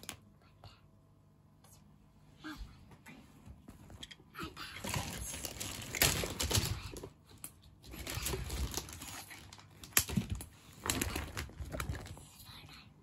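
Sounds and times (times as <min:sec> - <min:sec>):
plastic toys clattering: 0:04.8 - 0:07.1, 0:07.8 - 0:12.2
plastic toys clicking together: 0:04.9 - 0:12.1.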